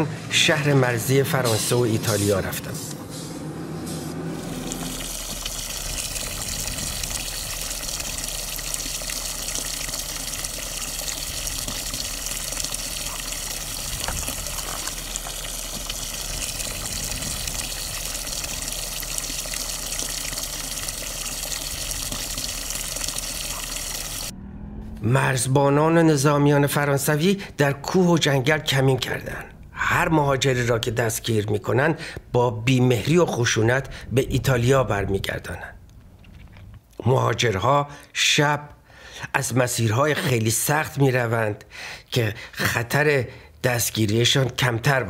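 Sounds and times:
water pouring into trough: 4.3s - 24.3s.

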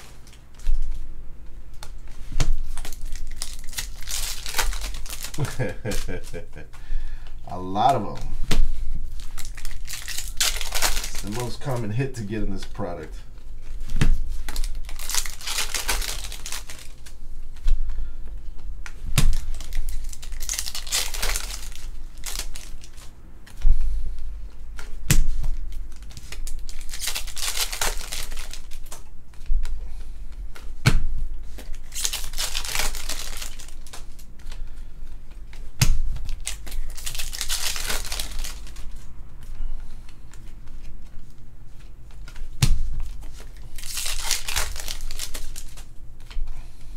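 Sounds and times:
foil wrappers crinkling and tearing: 2.6s - 6.6s, 9.1s - 17.2s, 19.2s - 23.1s, 25.8s - 29.1s, 31.5s - 34.8s, 35.4s - 39.1s, 42.2s - 45.9s.

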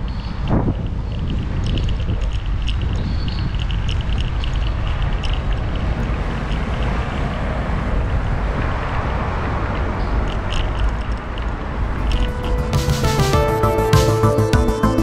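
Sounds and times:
faint clicks and rattles: 0.0s - 7.2s
wind buffeting microphone: 0.0s - 12.8s
low rumble of riding on road: 0.0s - 15.0s.

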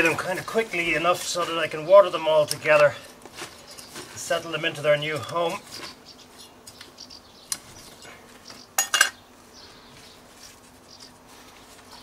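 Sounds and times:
rustling in compost bag: 0.0s - 6.4s, 9.4s - 12.0s.

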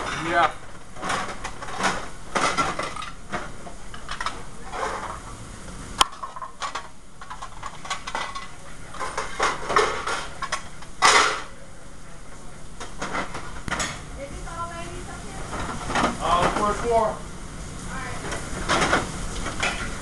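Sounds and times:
pans and utensils clattering: 0.0s - 5.3s, 6.0s - 11.6s, 12.8s - 14.1s, 15.4s - 17.1s, 18.2s - 20.0s.

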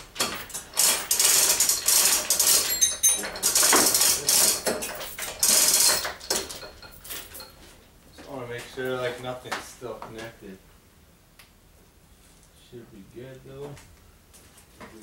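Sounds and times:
engine hoist mechanical strokes: 0.0s - 7.4s.

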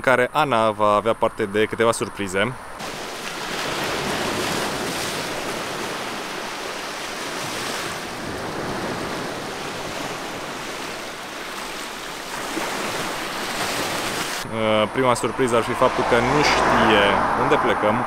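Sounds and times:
waves breaking on shore: 2.8s - 14.5s.

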